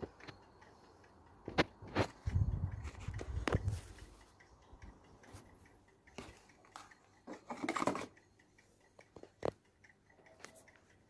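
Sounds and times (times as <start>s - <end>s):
sharp small clicks and taps: 8.9s - 11.0s.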